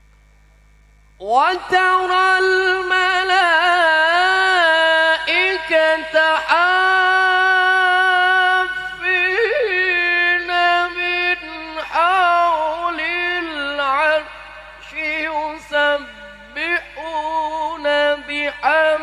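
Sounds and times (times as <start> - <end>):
man reciting melodically into microphone: 1.2 - 19.0.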